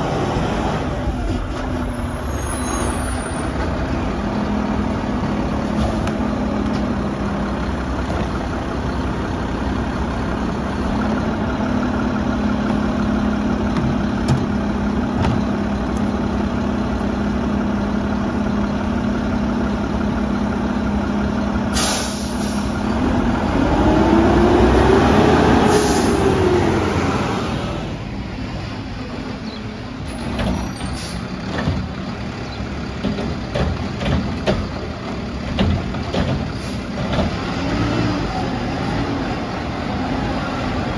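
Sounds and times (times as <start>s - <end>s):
truck engine running: 3.4s - 40.9s
air brake hiss: 21.7s - 22.8s, 25.6s - 26.3s.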